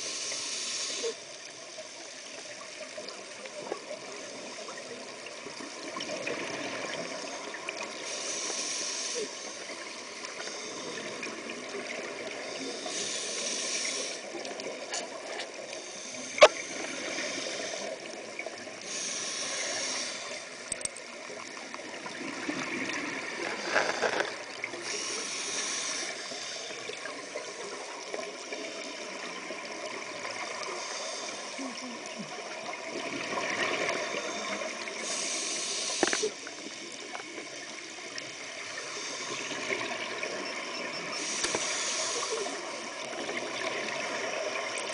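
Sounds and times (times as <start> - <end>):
diver breathing through regulator: 8.0 - 9.8, 12.6 - 14.4, 15.0 - 18.2, 18.8 - 20.6, 23.4 - 27.0, 30.6 - 31.8, 34.0 - 36.5, 41.2 - 42.8.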